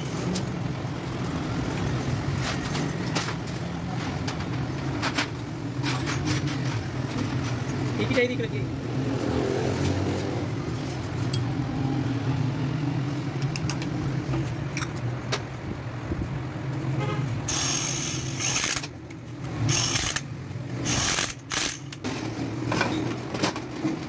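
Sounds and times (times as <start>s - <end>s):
metallic clicks of tools: 13.3s - 14.0s, 17.5s - 22.0s.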